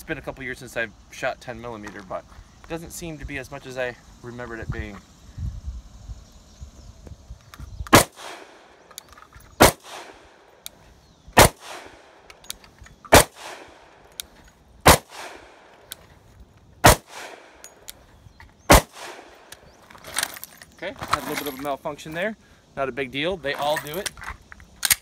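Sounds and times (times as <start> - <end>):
pistol shots with echo: 7.9 - 8.6, 9.6 - 10.2, 11.4 - 12.2, 13.1 - 13.9, 14.8 - 15.7, 16.8 - 17.7, 18.7 - 19.4.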